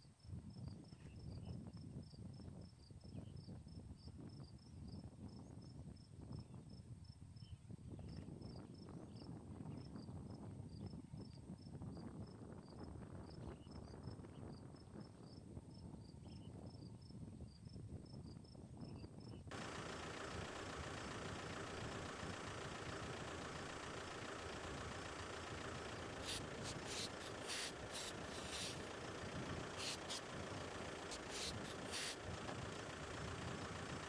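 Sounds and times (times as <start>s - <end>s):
insects chirping: 19.5s - 22.4s, 23.6s - 32.2s
vehicle engine idling: 19.5s - 34.0s
aerosol spray hissing: 26.1s - 28.9s, 29.7s - 30.3s, 31.1s - 32.2s.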